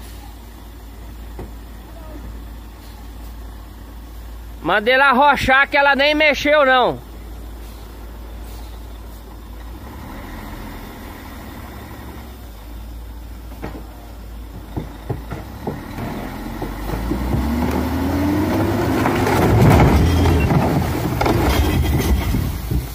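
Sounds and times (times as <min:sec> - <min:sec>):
truck diesel engine revving: 0:07.2 - 0:13.4, 0:14.2 - 0:22.9
sharp knocks: 0:14.5 - 0:17.9
logs crashing down: 0:14.5 - 0:22.9.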